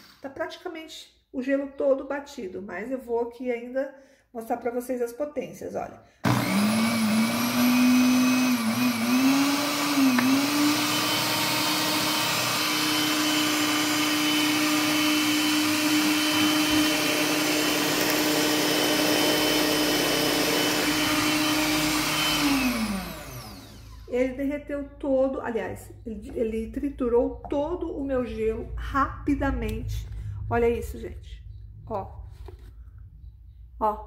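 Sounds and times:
blender crushing ice: 6.2s - 24.1s.

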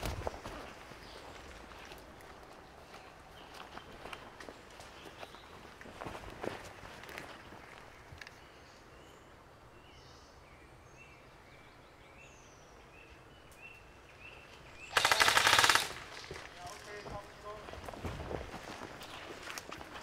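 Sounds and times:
small birds chirping: 0.0s - 6.2s, 7.0s - 17.7s, 18.7s - 20.0s
woodland ambience: 0.0s - 20.0s
airsoft gun full-auto burst: 14.9s - 16.3s.

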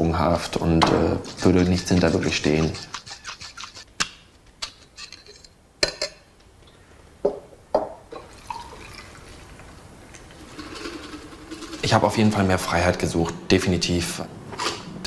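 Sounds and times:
drink pouring over ice: 8.2s - 9.6s, 10.3s - 12.0s.

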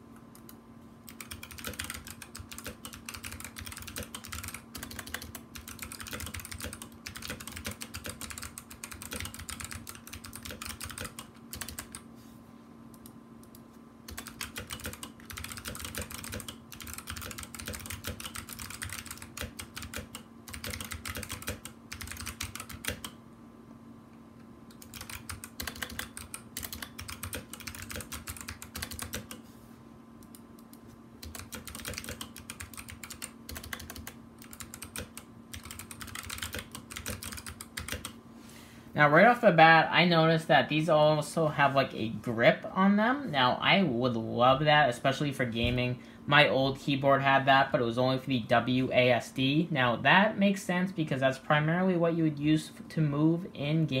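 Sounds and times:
fast typing on mechanical keyboard: 1.1s - 12.0s, 14.1s - 23.2s, 24.7s - 29.4s, 31.2s - 38.2s.

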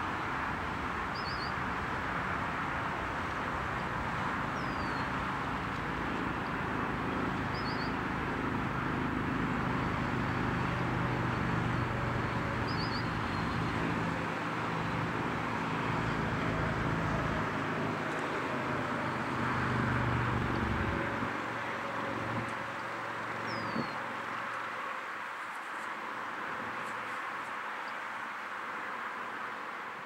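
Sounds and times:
road traffic noise: 0.0s - 30.0s
bird chirps: 7.5s - 8.0s, 12.6s - 13.7s, 23.5s - 24.0s.

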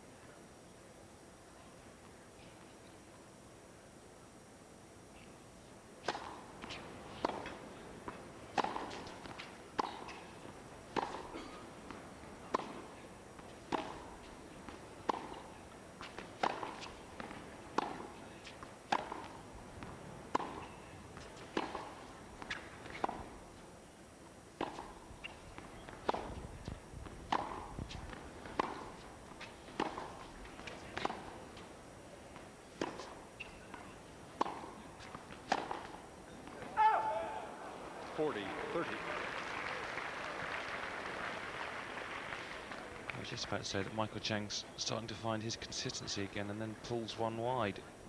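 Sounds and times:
tennis ball struck by rackets: 6.0s - 23.4s, 24.6s - 31.7s, 32.3s - 37.1s
tennis ball bouncing: 6.0s - 23.6s, 24.5s - 37.0s.

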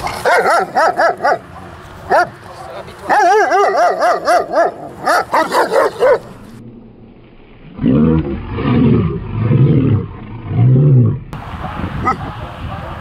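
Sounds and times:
dog barking aggressively: 0.0s - 2.4s, 3.1s - 6.4s.

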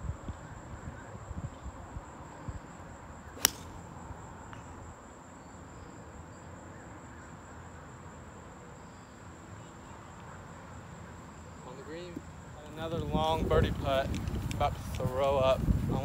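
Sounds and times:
golf club striking ball: 3.4s - 3.8s.

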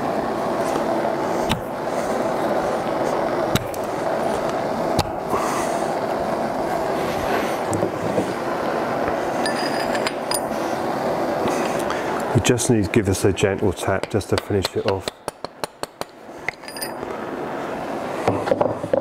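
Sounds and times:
steady whirring: 0.0s - 19.0s
high metallic ring: 9.4s - 10.5s, 16.5s - 17.0s.

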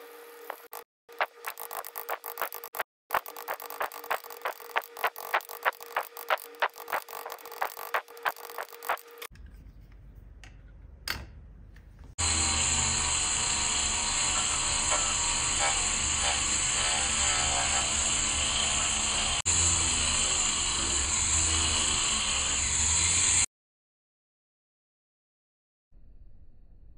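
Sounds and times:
rotary tool high-pitched whine: 0.4s - 9.3s, 12.2s - 23.5s.

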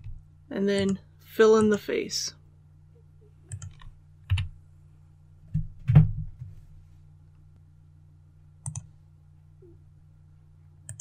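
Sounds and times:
faint low hum: 0.0s - 11.0s
keyboard and mouse clicks: 3.5s - 4.5s, 8.6s - 8.9s.

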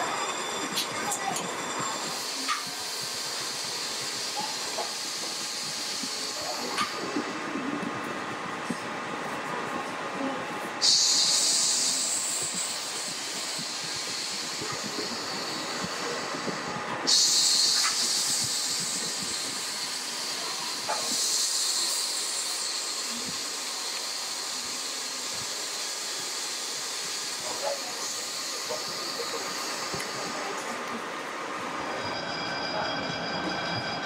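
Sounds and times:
loud sudden hiss: 10.8s - 15.2s.

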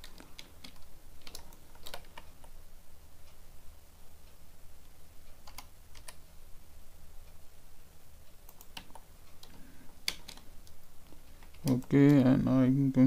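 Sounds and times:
keyboard keystrokes: 0.0s - 2.5s, 5.4s - 6.2s, 8.5s - 10.8s
faint low hum: 0.0s - 13.0s
mouse clicks: 5.3s - 6.2s.

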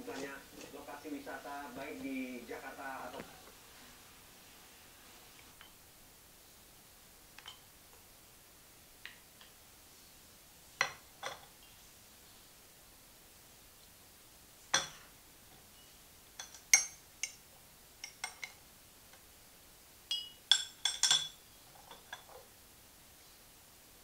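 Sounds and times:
teaspoon clinking against cup: 20.1s - 22.3s.

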